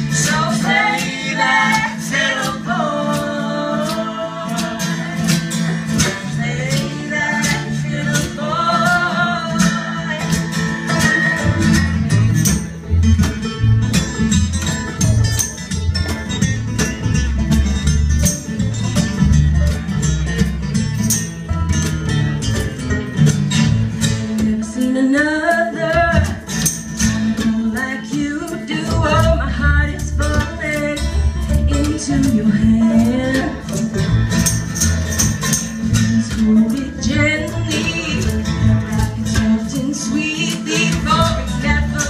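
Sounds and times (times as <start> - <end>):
woman singing: 0.0 - 12.2, 24.3 - 26.6, 27.2 - 34.0, 35.8 - 42.0
bluegrass string band playing: 0.0 - 42.0.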